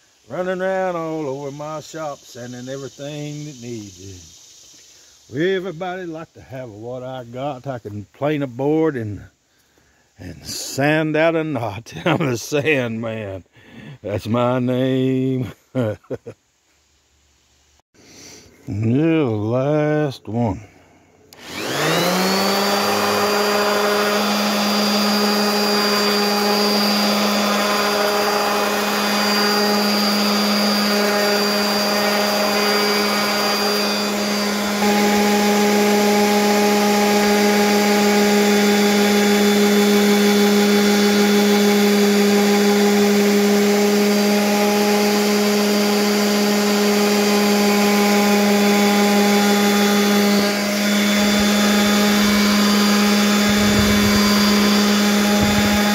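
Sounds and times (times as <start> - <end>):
orbital sander motor humming: 21.3 - 55.9
sanding a wooden board: 21.5 - 55.9.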